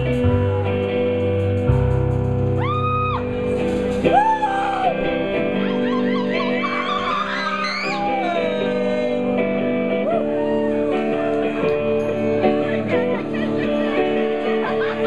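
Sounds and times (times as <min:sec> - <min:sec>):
electric guitar chords: 0:00.0 - 0:15.0
person singing: 0:04.0 - 0:14.6.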